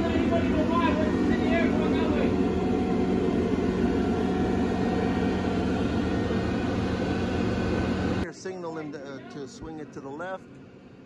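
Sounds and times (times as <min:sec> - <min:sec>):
diesel engine running under load: 0:00.0 - 0:08.2.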